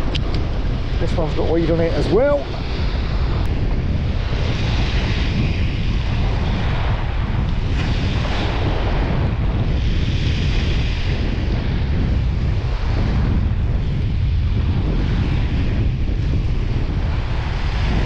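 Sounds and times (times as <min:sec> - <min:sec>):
surf on the shore: 0:00.0 - 0:18.0
wind buffeting microphone: 0:00.0 - 0:18.0.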